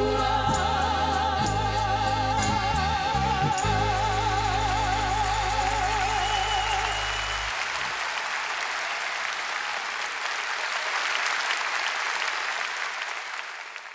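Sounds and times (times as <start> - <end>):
audience applause: 6.0 - 13.9.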